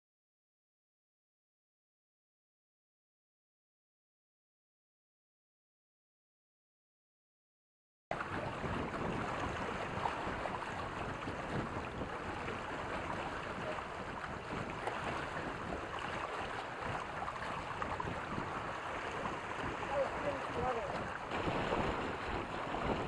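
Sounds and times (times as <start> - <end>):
water splashing past boat hull: 8.1 - 23.0.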